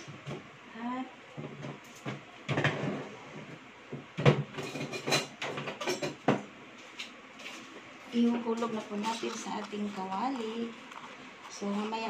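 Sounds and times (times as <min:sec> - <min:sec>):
utensils knocking on a counter: 0:04.2 - 0:06.4.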